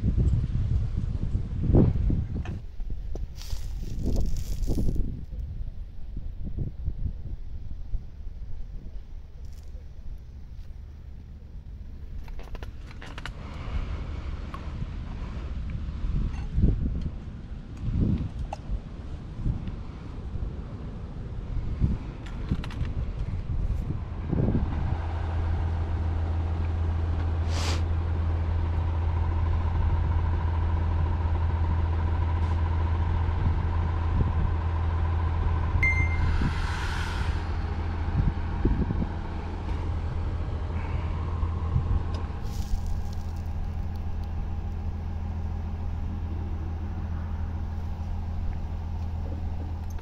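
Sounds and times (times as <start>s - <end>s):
large engine humming: 0.0s - 50.0s
air hiss: 27.4s - 27.9s, 36.2s - 38.1s.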